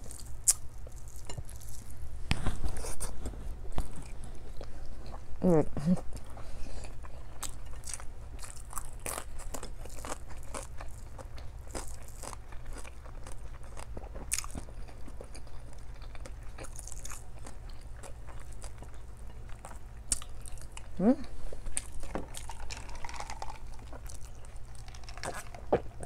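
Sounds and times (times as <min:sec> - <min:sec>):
steady low hum: 0:00.0 - 0:26.0
chewing and mouth smacks: 0:06.1 - 0:20.9, 0:21.6 - 0:26.0.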